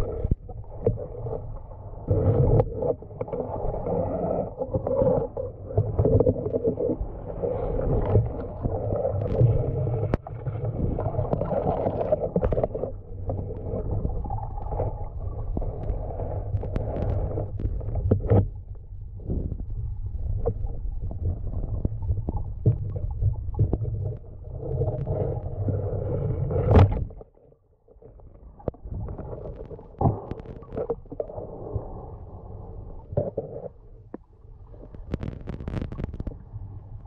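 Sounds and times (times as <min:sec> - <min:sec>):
underwater rumbling and gurgling: 0:00.0 - 0:37.0
faint clicks and knocks: 0:11.2 - 0:25.5, 0:33.0 - 0:37.0.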